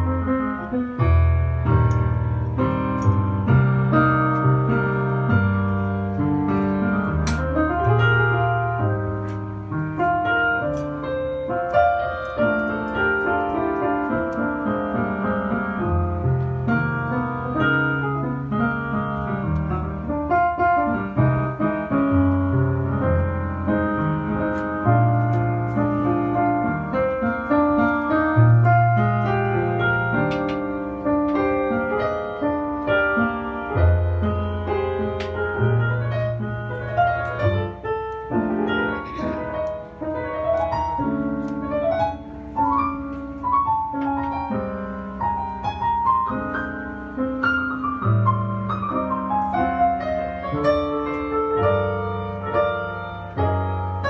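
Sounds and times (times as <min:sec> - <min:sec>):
solo piano playing: 0:00.0 - 0:54.0.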